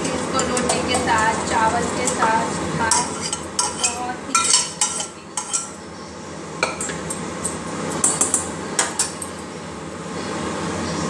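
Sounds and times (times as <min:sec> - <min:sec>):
metal spoon scraping cookware: 0:02.0 - 0:05.8
spoon clinking on steel: 0:02.9 - 0:05.8.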